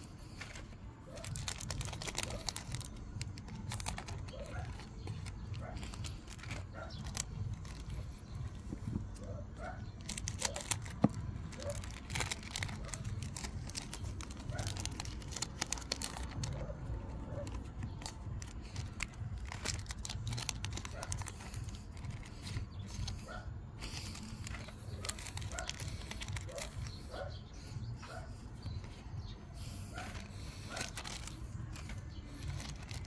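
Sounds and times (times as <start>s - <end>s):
wrappers crinkling and tearing: 0.0s - 27.8s, 29.6s - 33.0s
cards being handled: 0.0s - 33.0s.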